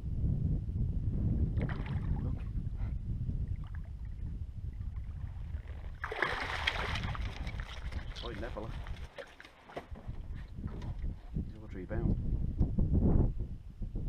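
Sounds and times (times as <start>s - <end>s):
fish splashing at the surface: 6.0s - 8.2s.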